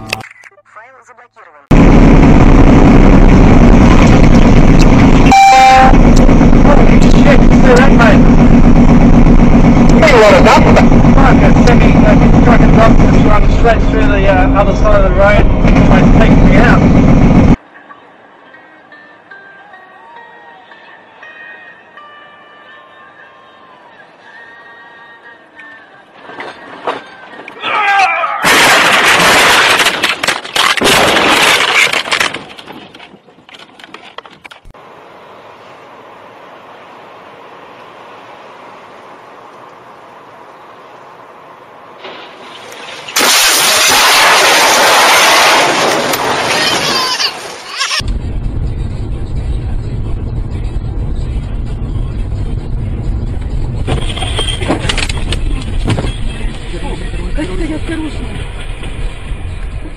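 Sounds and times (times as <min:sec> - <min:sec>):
car road and engine rumble: 0:00.0 - 0:19.3, 0:21.0 - 0:59.9
vehicle crash crunching and scraping: 0:26.2 - 0:34.8, 0:42.0 - 0:48.2, 0:53.7 - 0:56.7
debris clattering: 0:28.4 - 0:34.7, 0:42.0 - 0:47.9
tire squeal: 0:46.3 - 0:48.0, 0:53.8 - 0:55.3.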